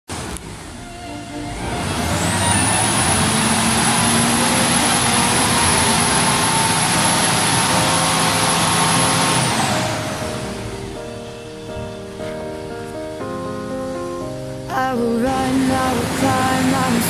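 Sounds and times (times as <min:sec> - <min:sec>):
diesel engine revving high: 0:00.1 - 0:12.0, 0:15.3 - 0:17.0
high engine whistle: 0:00.4 - 0:12.8.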